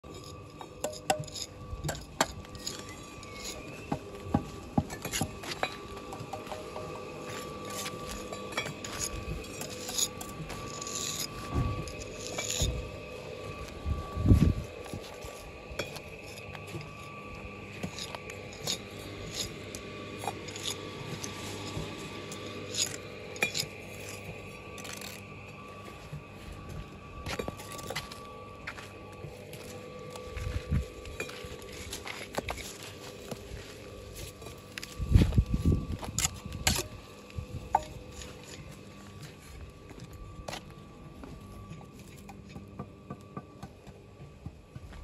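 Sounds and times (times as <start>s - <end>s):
trowel scraping mortar: 0.1s - 5.6s, 7.2s - 12.8s, 17.7s - 25.2s
trowel clinking on bricks: 0.1s - 12.7s, 22.4s - 25.2s.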